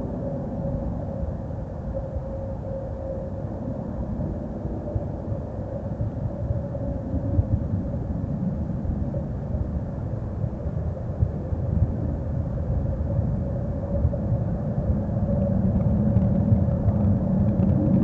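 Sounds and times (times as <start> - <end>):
faint steady hum: 0.0 - 18.0
low rumble: 11.2 - 18.0.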